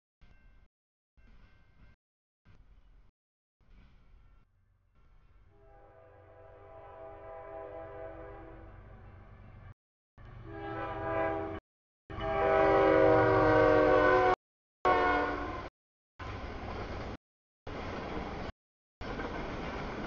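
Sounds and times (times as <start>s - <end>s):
train air horn blasts: 5.5s - 8.7s, 10.4s - 15.7s.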